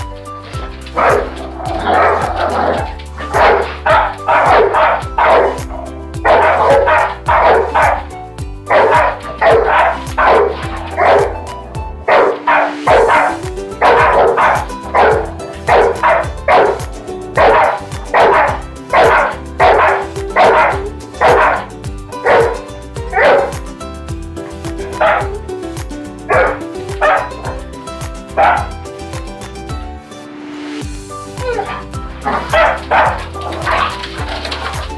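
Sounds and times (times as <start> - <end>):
background music: 0.0 - 34.9
dog barking sharply: 1.0 - 8.1, 8.7 - 11.4, 12.1 - 16.8, 17.4 - 23.5, 24.9 - 25.3, 26.3 - 27.6, 28.4 - 28.7, 31.4 - 34.8.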